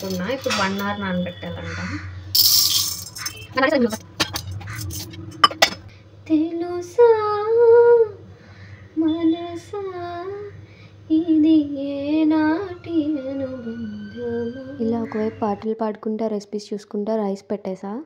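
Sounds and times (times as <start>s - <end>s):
steel containers clinking: 0.0s - 1.2s, 2.3s - 5.9s
woman singing: 6.3s - 8.2s, 9.0s - 15.8s.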